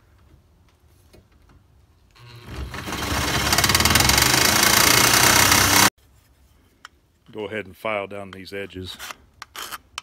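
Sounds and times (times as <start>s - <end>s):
jigsaw cutting metal: 2.2s - 5.9s.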